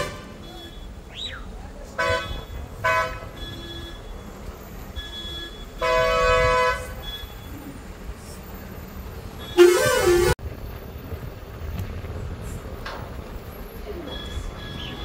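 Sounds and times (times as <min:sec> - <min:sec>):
vehicle horns honking: 0:00.0 - 0:01.0, 0:02.0 - 0:04.3, 0:05.0 - 0:07.4, 0:09.4 - 0:10.4
road noise: 0:00.0 - 0:15.0.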